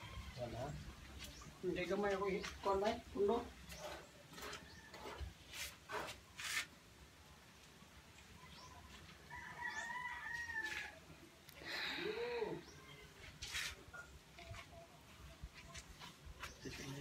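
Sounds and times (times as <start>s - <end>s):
rooster crowing: 9.3s - 11.1s.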